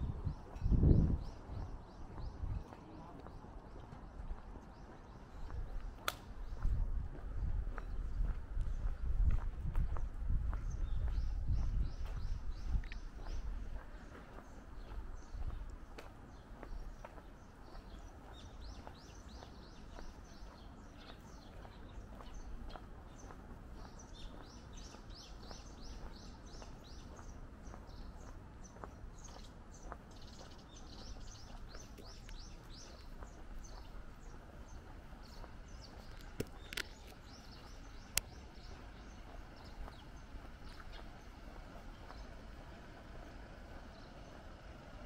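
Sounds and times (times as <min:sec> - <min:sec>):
low street hum: 0:00.0 - 0:45.0
small birds chirping: 0:00.0 - 0:45.0.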